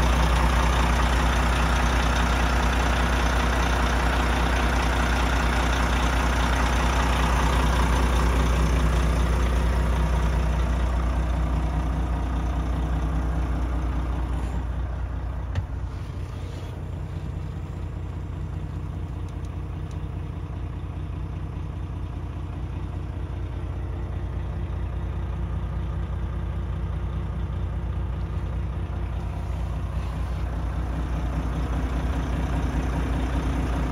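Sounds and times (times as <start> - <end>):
diesel truck engine idling: 0.0 - 33.9.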